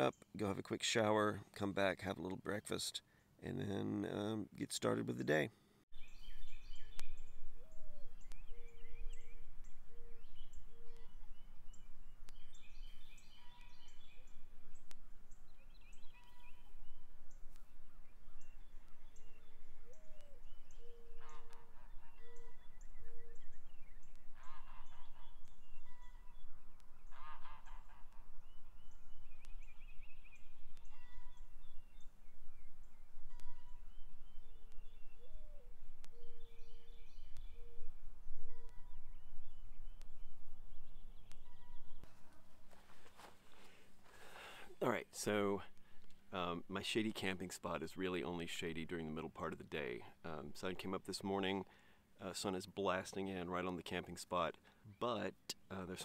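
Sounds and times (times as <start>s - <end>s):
songbirds chirping: 0.0s - 56.0s
low multi-note bird call: 5.9s - 42.4s
geese honking: 21.1s - 22.6s, 24.2s - 26.3s, 27.0s - 28.5s.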